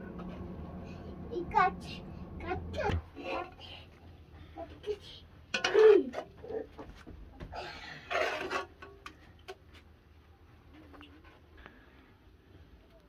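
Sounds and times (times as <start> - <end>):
metal skimmer scraping a pot: 7.9 - 9.2.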